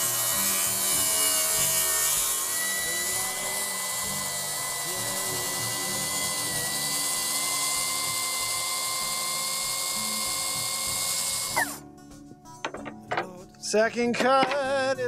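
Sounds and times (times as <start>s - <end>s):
motor whine: 0.0s - 11.8s
track saw cutting wood: 0.0s - 11.9s.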